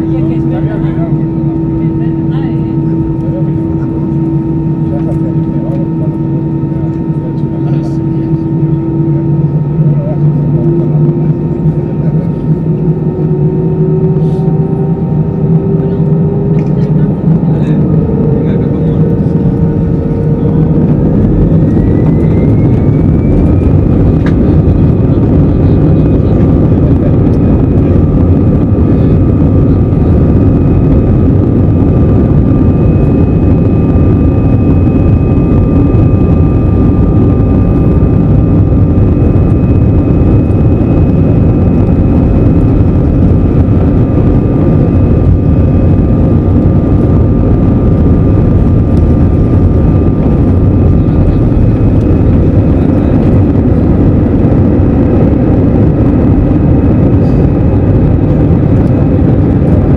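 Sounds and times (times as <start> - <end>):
jet engine whine: 0.0 - 59.9
loud rumble of takeoff roll: 0.0 - 59.9.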